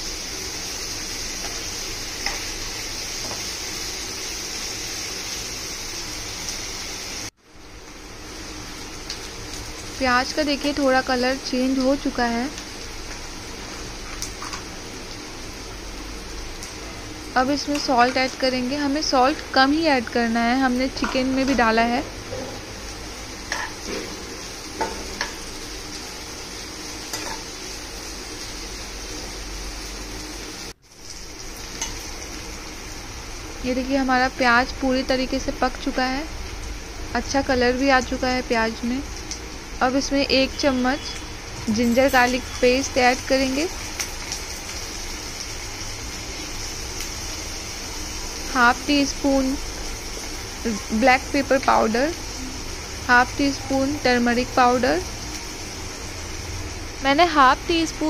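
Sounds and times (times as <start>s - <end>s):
onions sizzling in oil: 0.0s - 58.0s.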